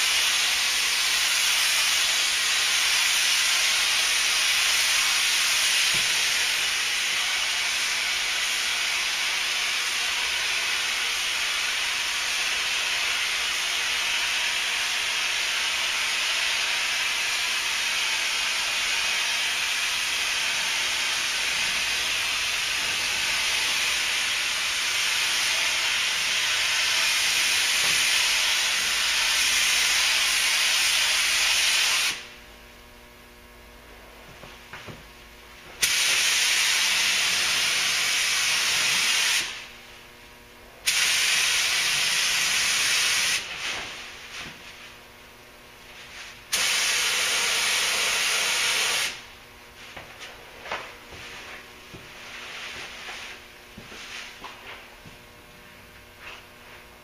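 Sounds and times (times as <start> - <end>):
spray gun hissing: 0.0 - 32.3, 35.8 - 39.7, 40.9 - 43.7, 46.1 - 49.2.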